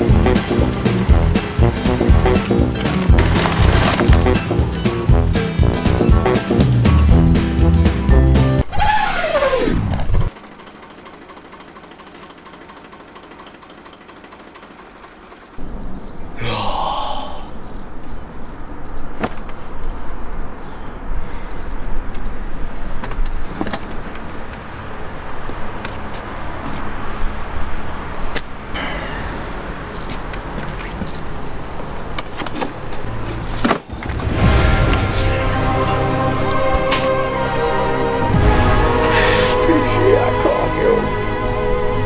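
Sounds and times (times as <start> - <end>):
tractor diesel engine rumbling: 0.0 - 7.2, 10.1 - 15.6, 34.4 - 42.0.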